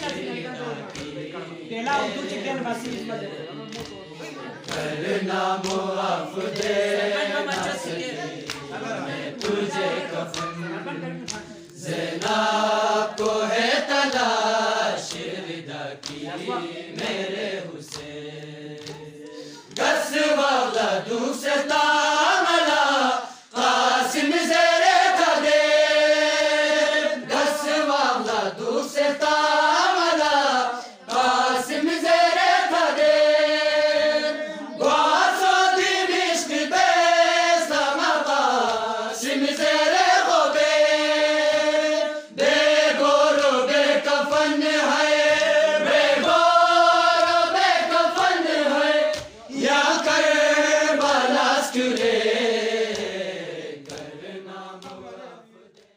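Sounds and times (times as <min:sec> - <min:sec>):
men chanting in unison: 0:00.0 - 0:55.9.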